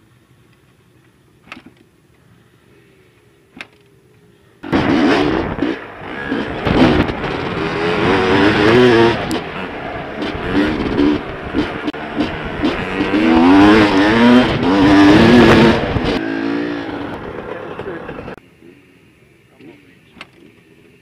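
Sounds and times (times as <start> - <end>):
dirt bike engine revving: 4.6 - 20.7.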